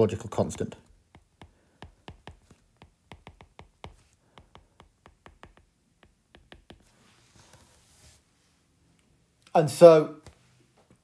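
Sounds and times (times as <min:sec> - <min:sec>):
stylus tapping on glass screen: 0:01.1 - 0:06.9.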